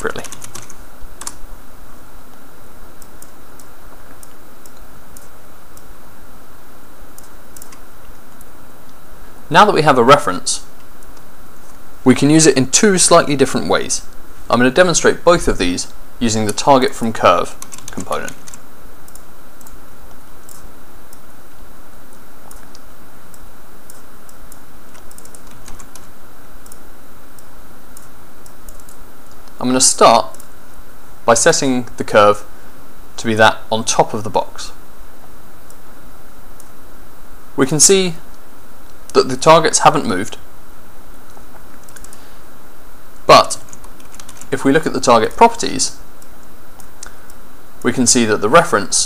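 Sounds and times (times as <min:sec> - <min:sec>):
steady background hiss: 0:00.0 - 0:49.0
keyboard and mouse clicks: 0:07.2 - 0:07.8, 0:22.4 - 0:22.9, 0:23.9 - 0:26.8, 0:28.0 - 0:29.6, 0:41.3 - 0:42.2.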